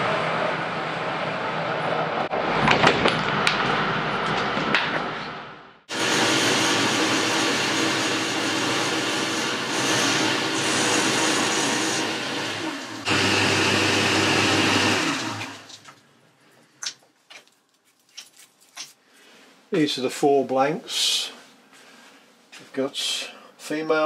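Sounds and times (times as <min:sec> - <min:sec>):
metal lathe machining: 0:05.9 - 0:15.7.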